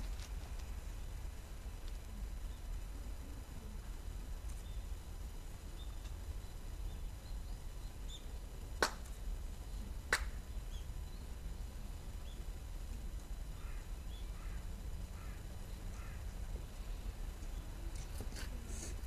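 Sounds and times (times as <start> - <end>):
steady low rumble: 0.0 - 19.0
sharp hand claps: 8.8 - 9.1, 10.1 - 10.4.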